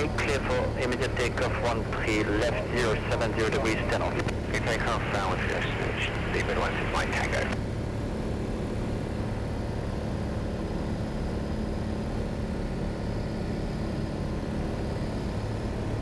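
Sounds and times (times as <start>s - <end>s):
propeller plane engine droning: 0.0s - 16.0s.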